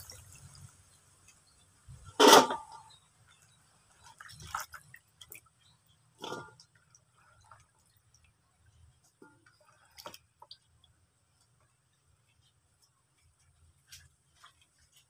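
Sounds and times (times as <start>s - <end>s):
water splashing in a basin: 0.0s - 0.9s, 2.0s - 11.0s
hands moving stalks in water: 3.9s - 7.9s.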